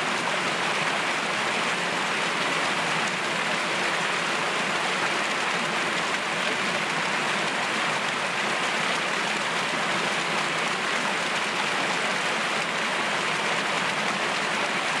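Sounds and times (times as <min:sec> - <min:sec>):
stream rushing over rocks: 0:00.0 - 0:15.0.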